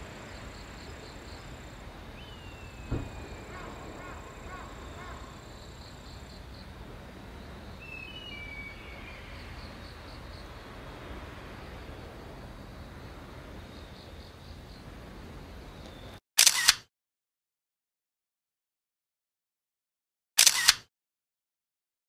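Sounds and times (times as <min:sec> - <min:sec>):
crickets chirping in trills: 0:00.0 - 0:16.2
wind: 0:00.0 - 0:16.9, 0:20.4 - 0:20.9
bird descending whistled call: 0:02.2 - 0:05.3, 0:07.8 - 0:09.6
soft thump: 0:02.9 - 0:03.3.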